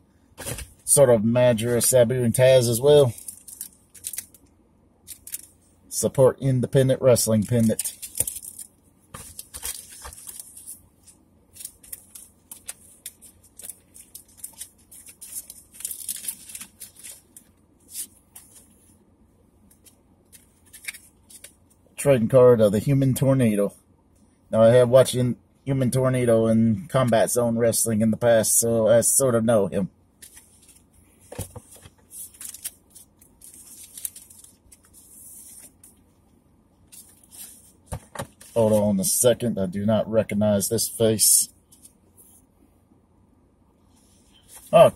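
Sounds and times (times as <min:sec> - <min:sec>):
plastic packaging crinkling: 0:03.0 - 0:04.5, 0:05.1 - 0:05.6, 0:07.3 - 0:18.7, 0:30.2 - 0:36.0.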